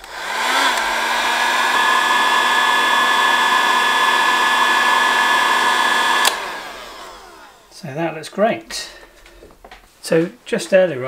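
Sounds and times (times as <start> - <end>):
heat gun fan whining: 0.0 - 7.8.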